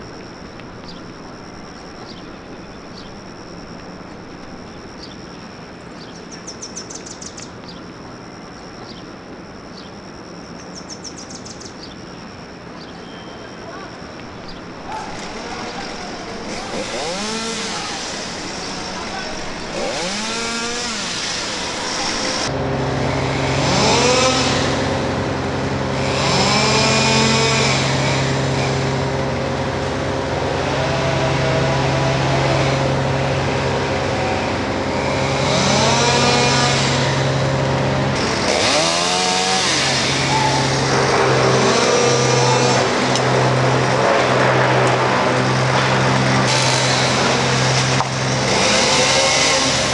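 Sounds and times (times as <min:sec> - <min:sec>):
steady engine hum: 0:00.0 - 0:49.9
chainsaw revving: 0:15.1 - 0:49.9.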